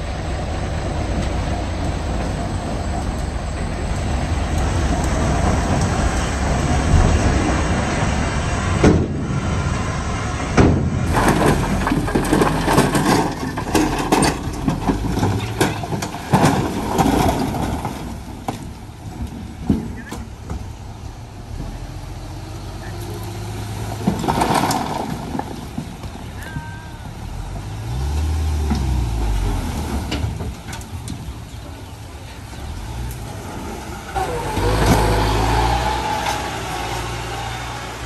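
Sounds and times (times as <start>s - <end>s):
truck engine rumbling: 0.0s - 38.0s
rocks tumbling and clattering: 10.4s - 37.4s.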